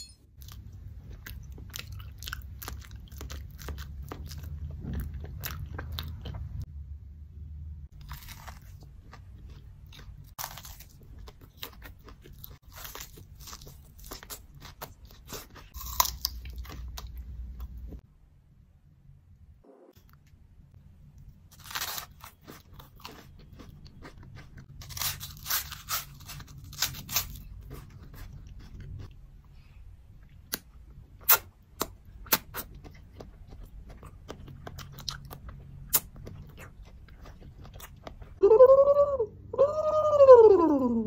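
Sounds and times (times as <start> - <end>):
crunching and chewing food: 0.3 - 6.7, 7.9 - 18.0, 21.0 - 38.4.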